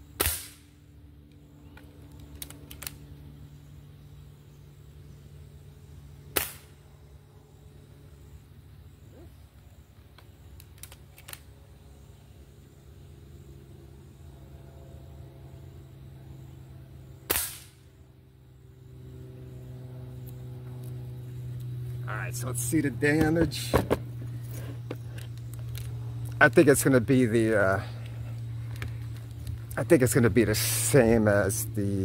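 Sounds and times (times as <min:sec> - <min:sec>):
air rifle shot crack: 0:00.2 - 0:00.7, 0:06.3 - 0:06.8, 0:17.3 - 0:17.9.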